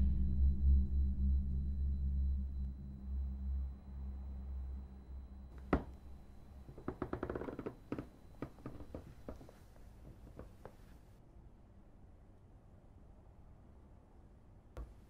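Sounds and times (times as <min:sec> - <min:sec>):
low drone: 0:00.0 - 0:09.5.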